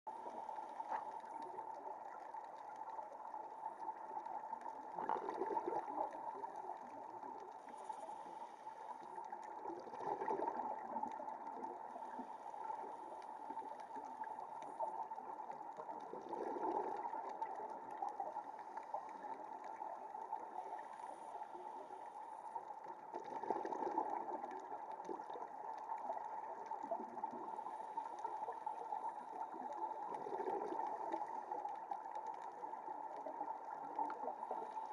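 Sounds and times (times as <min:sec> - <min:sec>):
steady underwater hum: 0:00.1 - 0:34.9
regulator bubbling: 0:04.8 - 0:07.6, 0:09.1 - 0:12.2, 0:14.9 - 0:18.6, 0:28.3 - 0:31.6.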